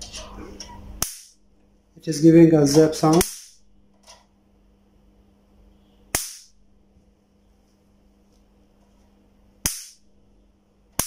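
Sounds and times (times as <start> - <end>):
faint steady hum: 0.0 - 11.0
bug zapper sharp zaps: 6.1 - 6.5, 9.6 - 10.0.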